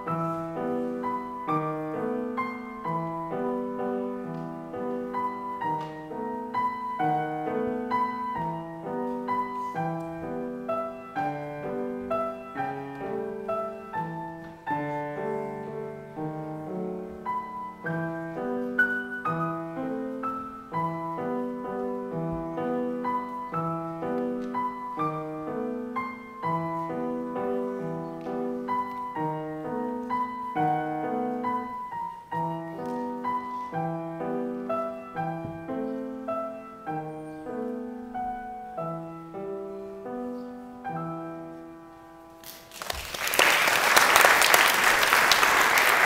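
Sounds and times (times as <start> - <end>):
grand piano waltz: 0.0 - 42.7
audience applause: 42.4 - 46.0.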